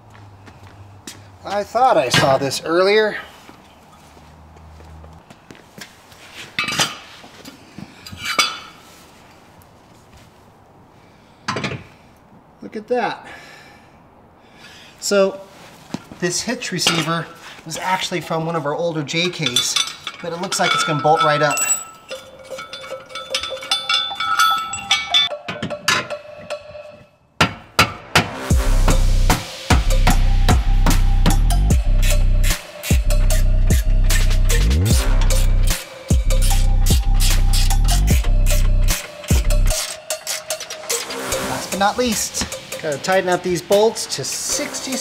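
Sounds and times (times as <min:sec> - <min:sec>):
metallic clanks: 0:19.1 - 0:28.3, 0:34.9 - 0:45.0
metal clinks and taps: 0:19.2 - 0:27.1.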